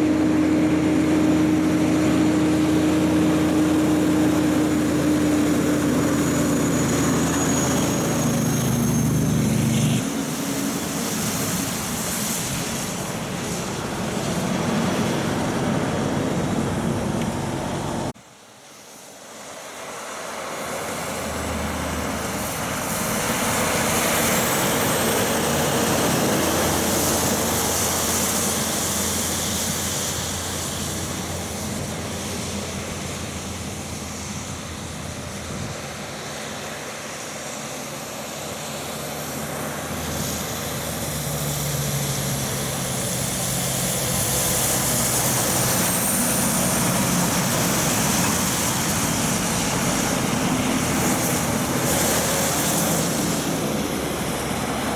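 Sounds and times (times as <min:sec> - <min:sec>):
diesel engines running: 0:00.0 - 0:18.2, 0:18.9 - 0:54.9
trucks driving past: 0:00.0 - 0:18.2, 0:18.9 - 0:54.9
tyre noise on wet road: 0:18.8 - 0:54.9.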